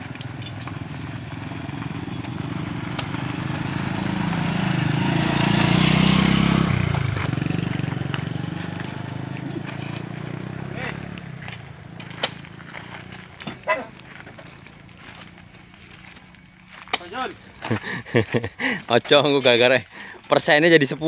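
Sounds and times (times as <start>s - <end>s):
motor scooter riding past: 0.0s - 16.7s.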